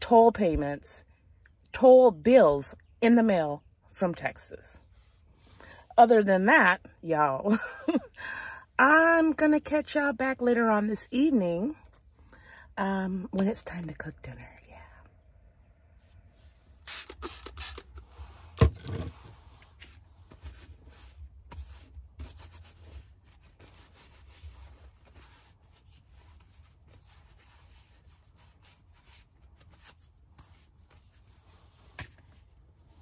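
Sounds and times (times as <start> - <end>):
paper towel rubbing on squash: 18.1 - 33.0.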